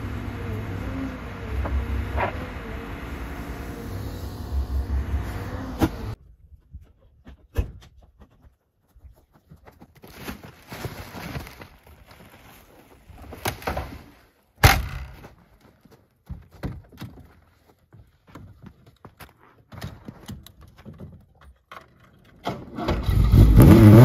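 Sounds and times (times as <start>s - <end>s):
sack rustling and handling: 10.0s - 14.2s.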